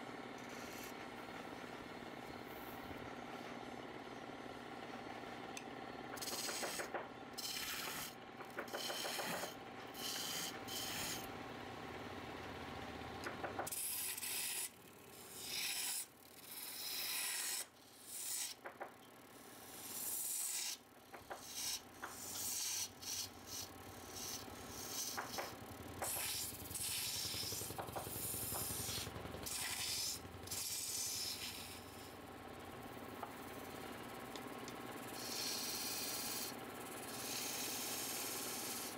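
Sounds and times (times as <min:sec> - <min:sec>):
wood scraping on a lathe: 0:06.2 - 0:11.4, 0:13.6 - 0:18.7, 0:19.7 - 0:32.2, 0:35.0 - 0:38.9.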